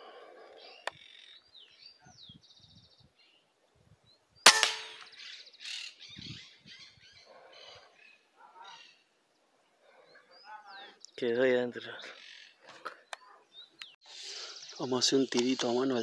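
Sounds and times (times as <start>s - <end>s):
birds chirping: 0.0s - 16.0s
air rifle shot: 4.5s - 5.1s.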